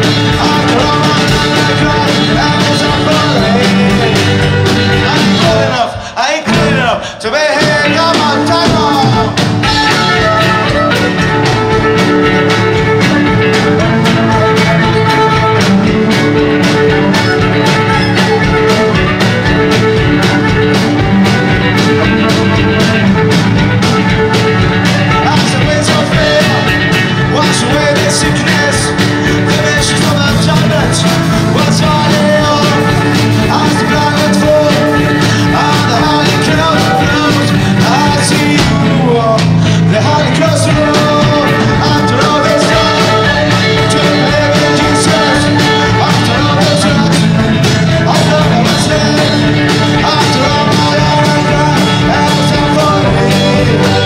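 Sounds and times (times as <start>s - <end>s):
violin: 0.0s - 5.9s, 8.1s - 38.8s
drum kit: 0.0s - 54.0s
electric guitar: 0.0s - 54.0s.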